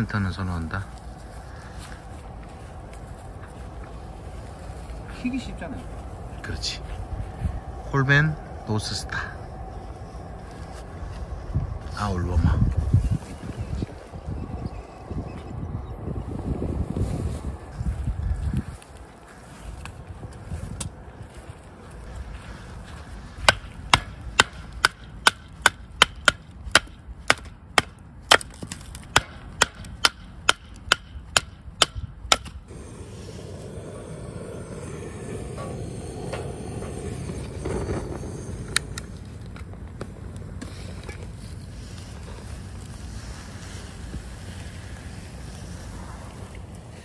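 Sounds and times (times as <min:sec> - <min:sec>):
wood fire burning: 0:00.0 - 0:14.3, 0:16.9 - 0:47.0
fire popping: 0:32.4 - 0:47.0.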